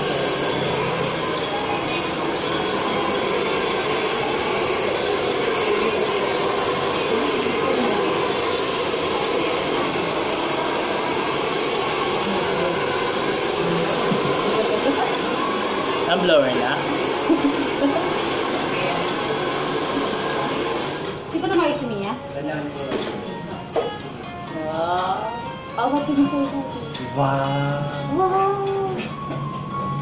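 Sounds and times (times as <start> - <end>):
hair dryer blowing: 0.0 - 21.8.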